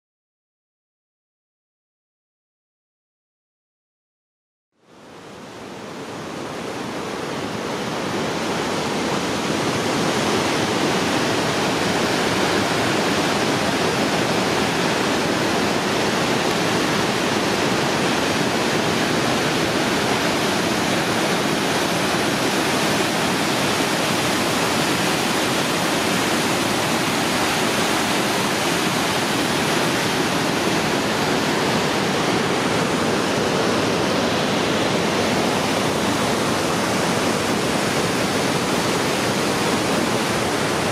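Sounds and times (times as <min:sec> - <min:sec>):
whitewater rapids rushing: 0:04.9 - 0:40.9.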